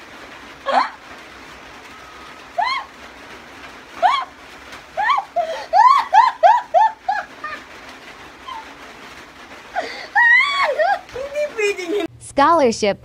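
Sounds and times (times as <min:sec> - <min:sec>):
women laughing: 0:05.0 - 0:07.8, 0:09.8 - 0:12.1.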